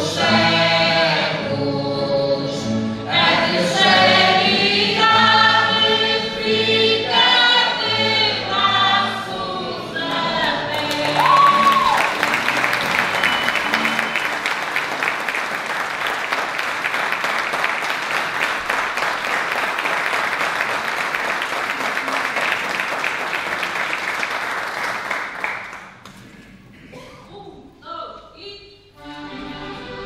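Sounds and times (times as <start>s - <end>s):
audience applauding: 10.4s - 26.3s.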